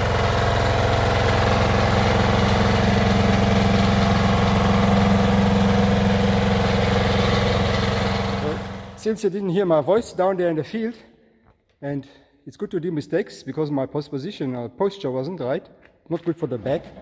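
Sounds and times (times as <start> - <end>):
rotary plough turning soil: 0.0 - 8.9
tractor engine running under load: 0.0 - 9.0.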